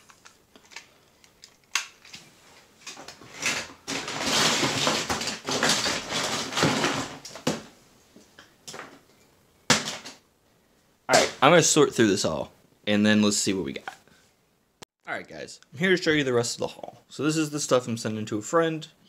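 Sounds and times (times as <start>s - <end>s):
plastic toys clattering: 0.0s - 7.7s
plastic bag rustling: 0.0s - 7.8s.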